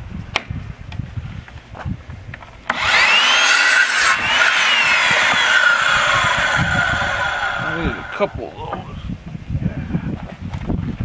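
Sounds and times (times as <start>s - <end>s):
saw blade cutting wood: 2.7s - 8.6s
saw motor whining: 2.7s - 8.8s.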